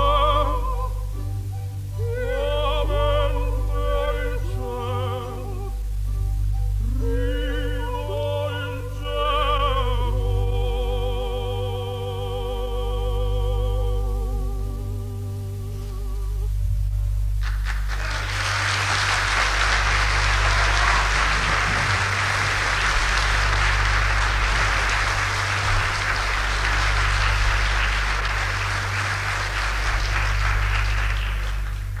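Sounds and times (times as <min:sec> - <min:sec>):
steady low hum: 0:00.0 - 0:32.0
audience applauding: 0:17.4 - 0:32.0.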